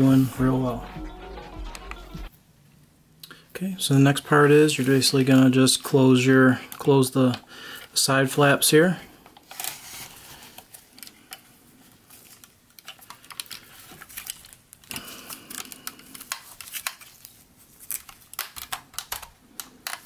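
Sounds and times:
plastic parts clicking and scraping: 12.2s - 17.3s, 17.9s - 20.0s.

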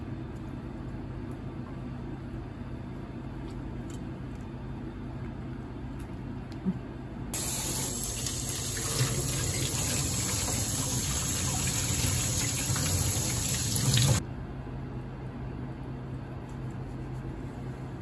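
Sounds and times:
tap water running into steel sink: 7.4s - 14.2s.

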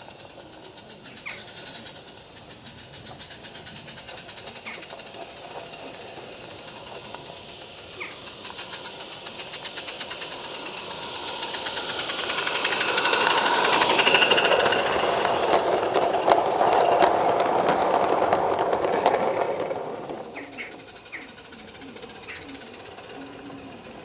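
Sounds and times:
steam locomotive chuffing: 0.0s - 24.0s
wheels rumbling on rails: 0.0s - 24.0s.

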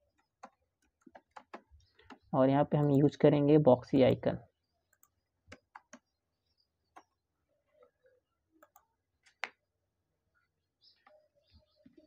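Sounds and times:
computer keyboard and mouse clicks: 0.1s - 3.0s, 4.9s - 6.1s, 8.6s - 9.6s.

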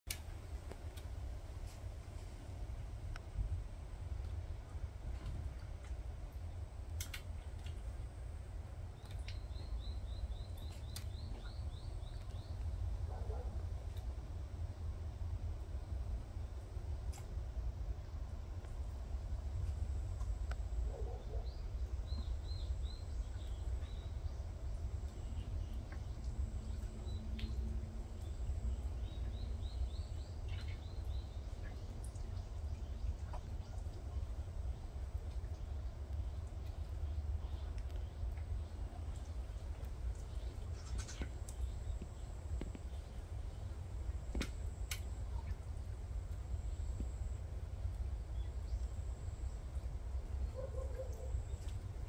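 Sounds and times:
low outdoor rumble: 0.1s - 52.0s
small birds chirping: 8.9s - 13.5s, 20.9s - 44.4s.

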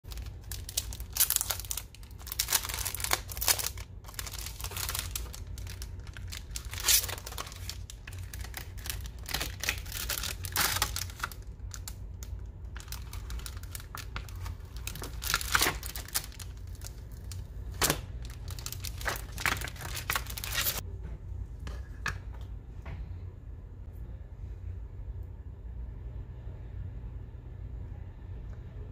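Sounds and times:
steady low hum: 0.0s - 28.9s
paper crinkling and tearing: 0.1s - 20.8s.

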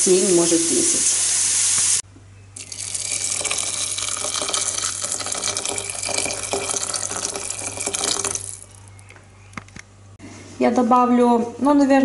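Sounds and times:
boiling water pouring into pot: 2.6s - 8.7s.

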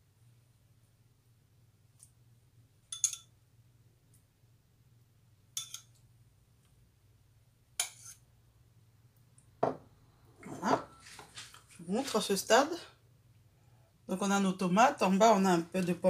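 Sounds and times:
metal utensil clinking on dishes: 2.9s - 3.3s, 5.6s - 5.9s.

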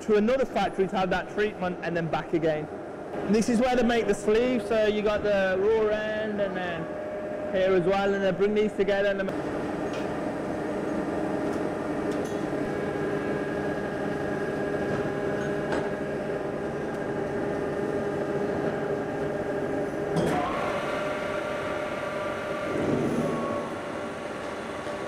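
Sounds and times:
welding machine hum: 9.3s - 25.0s.

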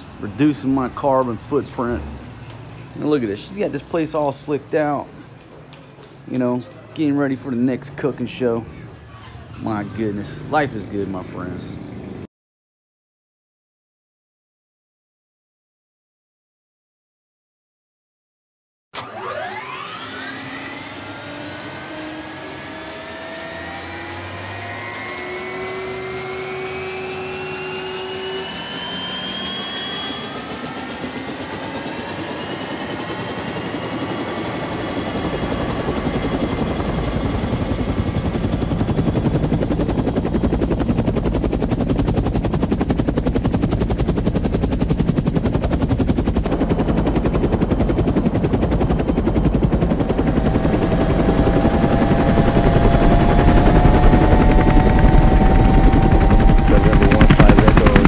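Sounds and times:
helicopter turbine whining: 0.0s - 5.4s, 6.3s - 12.3s, 19.0s - 58.0s
rotor blades beating: 19.0s - 58.0s.

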